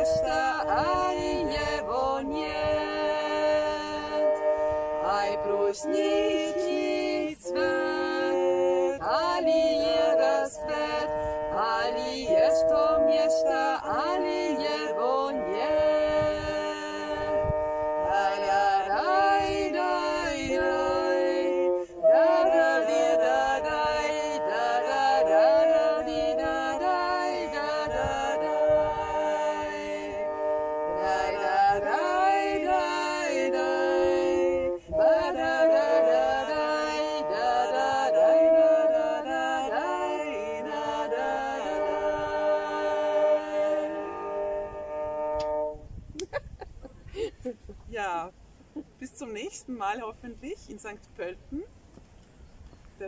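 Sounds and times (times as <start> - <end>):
women singing together: 0.0 - 4.4, 5.0 - 17.4, 18.1 - 30.2, 31.0 - 44.4
bowed fiddle drone: 0.0 - 46.0.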